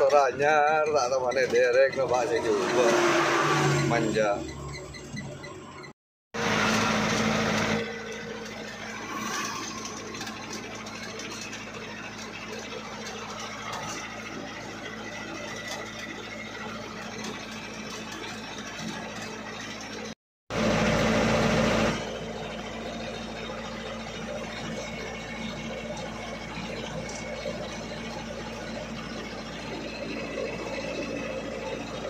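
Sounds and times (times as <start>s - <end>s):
truck diesel engine droning: 0.0s - 32.0s.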